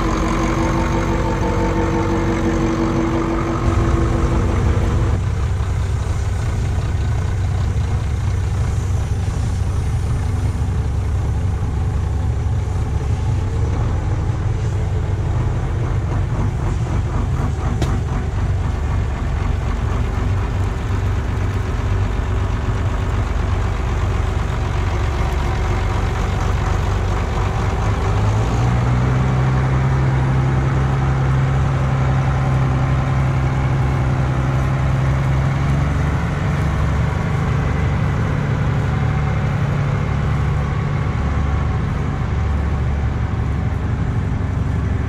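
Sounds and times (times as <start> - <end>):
tractor diesel engine running: 0.0 - 45.0.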